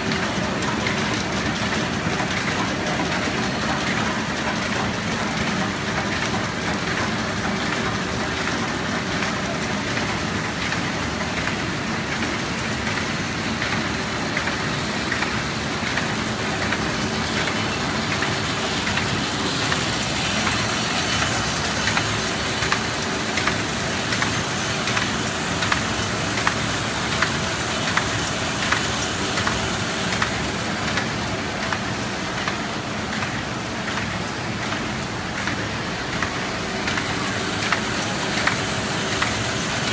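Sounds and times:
machine mechanical clatter: 0.0 - 39.9
regular machine clicking: 0.0 - 39.9.

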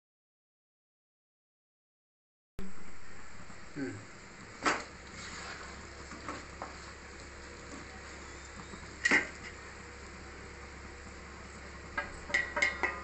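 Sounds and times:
chicken sizzling in a pot: 4.2 - 13.0
wooden spatula knocking pot: 12.0 - 13.0.

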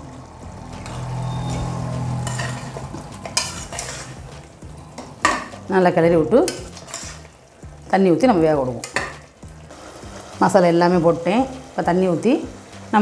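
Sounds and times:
ladle scraping metal pot: 0.8 - 7.4.

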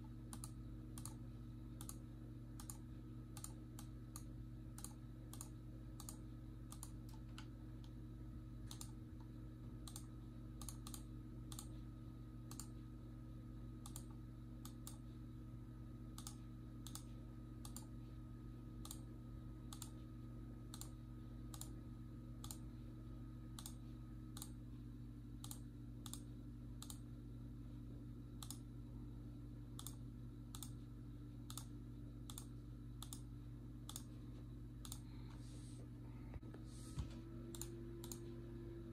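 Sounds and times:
low electrical hum: 0.0 - 38.9
computer mouse clicking: 0.3 - 1.2, 1.8 - 2.0, 2.6 - 8.0, 8.6 - 11.8, 12.5 - 12.8, 13.8 - 15.0, 16.1 - 17.9, 18.8 - 19.1, 19.7 - 20.0, 20.7 - 21.8, 22.4 - 22.6, 23.6 - 24.6, 25.4 - 27.1, 28.4 - 28.6, 29.8 - 30.8, 31.5 - 31.7, 32.3 - 33.3, 33.9 - 34.1, 34.8 - 35.4, 37.5 - 38.3.

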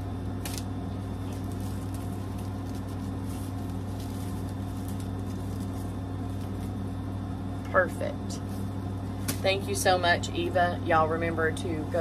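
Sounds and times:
low room hum: 0.0 - 12.0
ribbon braid rustling: 1.2 - 6.8.

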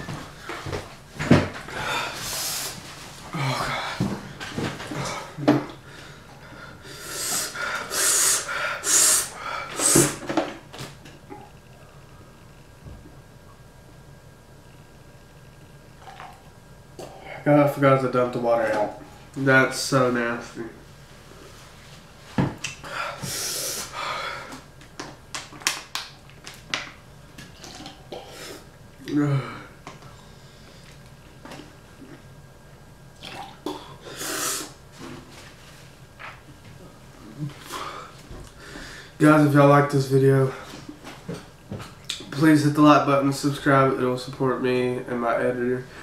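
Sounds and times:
person blowing hissing breaths: 1.7 - 4.1, 5.0 - 10.3, 22.8 - 24.6, 33.7 - 34.8.

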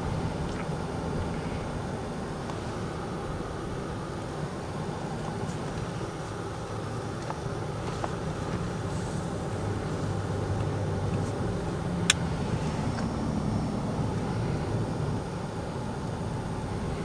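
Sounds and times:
vehicle cabin engine and road hum: 0.0 - 17.0.

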